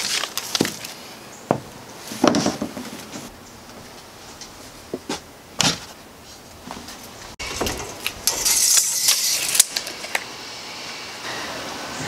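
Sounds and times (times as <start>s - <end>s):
plywood sheet knocking and scraping: 1.5s - 6.0s.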